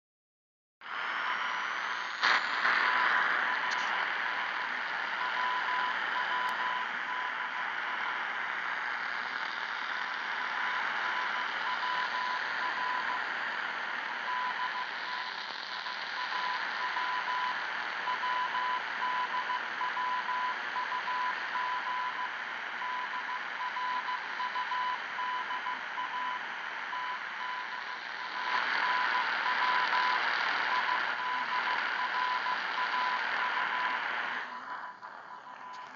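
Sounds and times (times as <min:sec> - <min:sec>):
radio static hiss: 0:00.8 - 0:35.9
morse code beeps: 0:05.2 - 0:07.4, 0:18.1 - 0:35.9.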